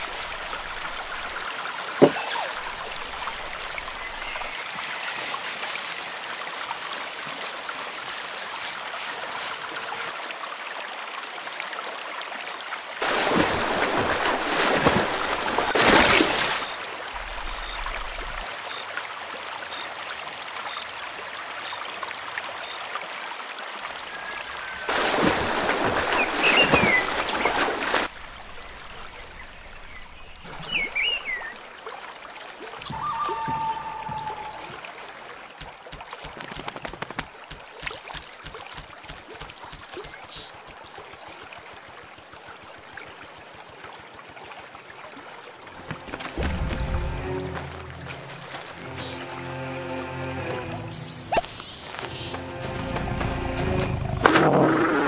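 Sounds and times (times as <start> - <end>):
moving water: 0.0 - 55.0
water trickling: 37.3 - 49.2.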